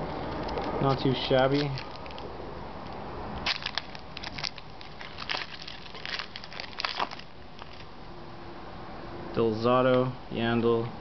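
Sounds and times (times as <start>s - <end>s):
foil wrapper tearing and crinkling: 1.0s - 2.3s, 3.4s - 7.9s.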